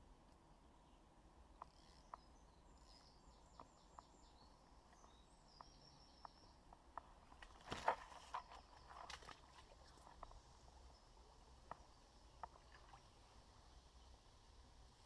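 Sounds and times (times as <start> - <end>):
faint birdsong: 0.0 - 15.0
soft ticks: 1.5 - 7.5.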